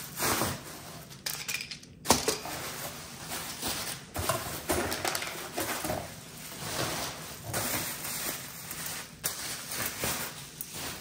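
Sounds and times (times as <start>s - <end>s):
bubble wrap crinkling: 2.4s - 11.0s.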